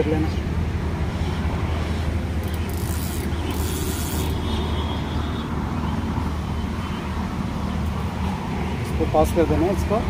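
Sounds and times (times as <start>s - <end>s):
fishing line rasping through guides: 2.4s - 5.2s.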